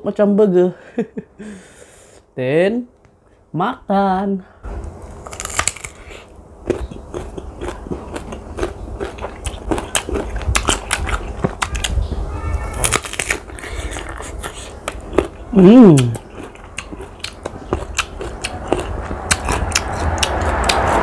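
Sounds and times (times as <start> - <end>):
crunching and chewing fruit: 4.7 - 21.0.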